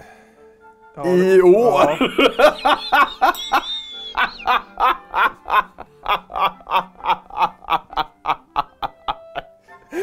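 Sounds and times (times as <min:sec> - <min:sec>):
man laughing hard: 0:01.6 - 0:09.5.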